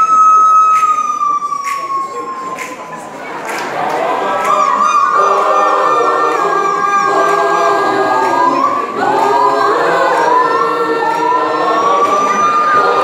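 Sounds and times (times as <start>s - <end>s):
choir singing a cappella: 3.4s - 13.0s.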